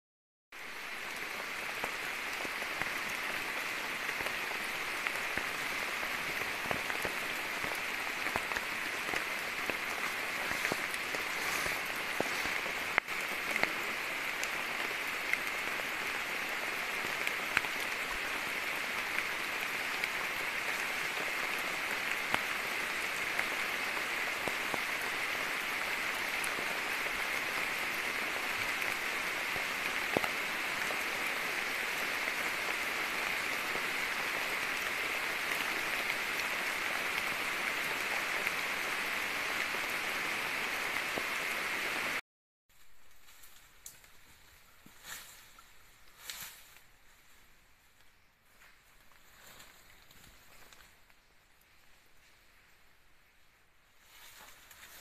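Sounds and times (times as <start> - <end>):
rain falling on foliage: 0.5 - 55.0
raindrop ticks: 4.1 - 33.9, 43.0 - 44.2.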